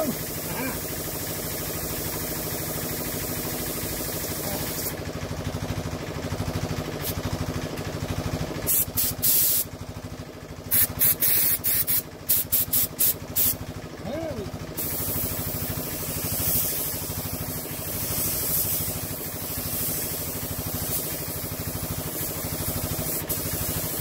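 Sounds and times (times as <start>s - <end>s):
spray gun hissing: 0.0s - 5.0s, 8.7s - 9.7s, 10.7s - 13.6s, 14.8s - 24.0s
air compressor running: 0.0s - 24.0s
steady air hiss: 8.7s - 9.7s, 14.8s - 24.0s.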